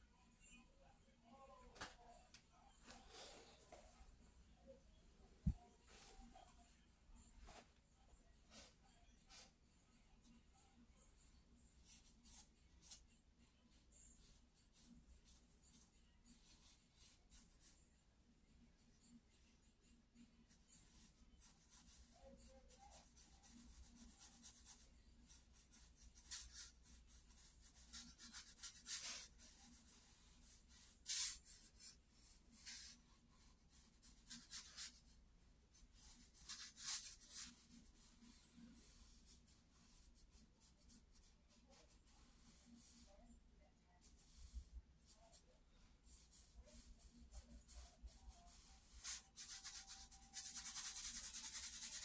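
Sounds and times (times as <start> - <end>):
charcoal scratching on paper: 11.8 - 17.8, 20.2 - 43.2, 44.0 - 52.0.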